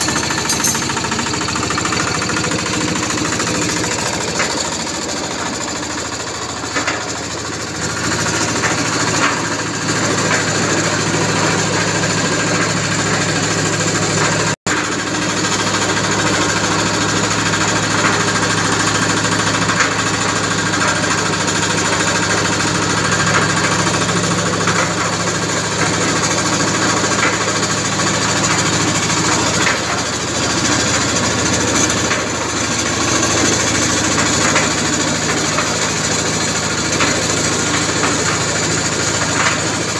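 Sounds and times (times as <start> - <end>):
diesel engine knocking clatter: 0.0 - 39.9.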